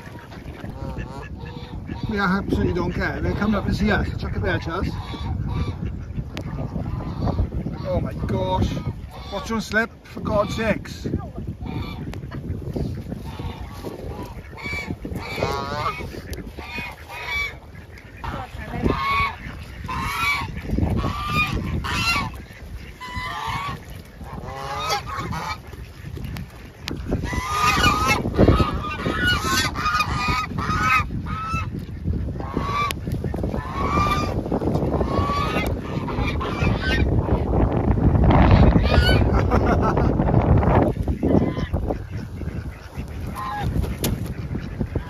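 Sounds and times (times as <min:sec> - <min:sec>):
geese honking: 0:00.0 - 0:45.0.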